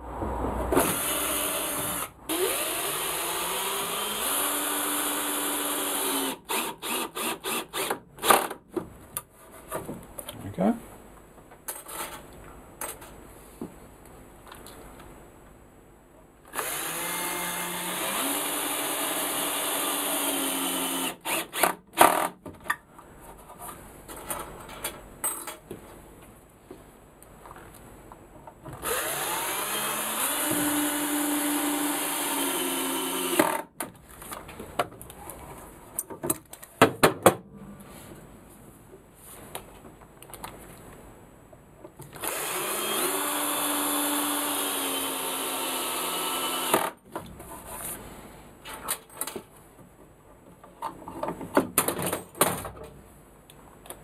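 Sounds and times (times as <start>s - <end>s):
power drill drilling into wood: 0.8s - 8.5s, 16.5s - 22.3s, 28.8s - 33.6s, 42.2s - 47.0s.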